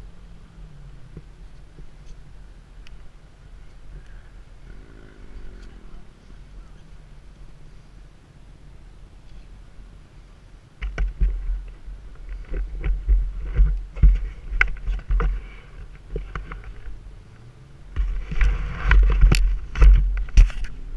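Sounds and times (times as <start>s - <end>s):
dirt bike engine: 0.0s - 8.1s, 10.8s - 20.9s
wind rumble on microphone: 0.0s - 20.9s.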